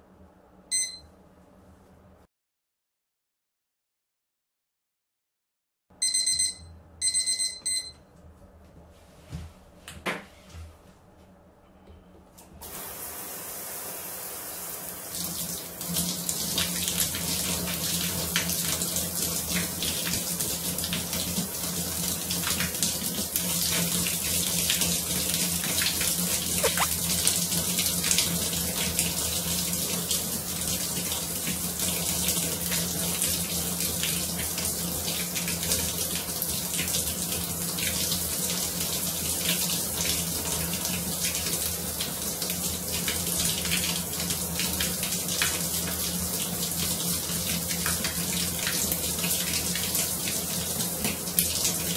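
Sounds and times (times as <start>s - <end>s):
water splashing on rubbing hands: 26.6s - 27.0s.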